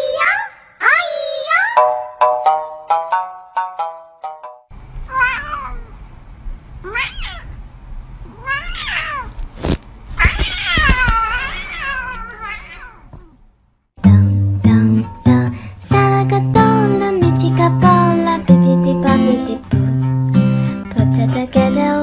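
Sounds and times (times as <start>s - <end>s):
cat meowing: 5.1s - 6.0s, 6.8s - 7.6s, 8.2s - 9.4s, 10.2s - 13.4s.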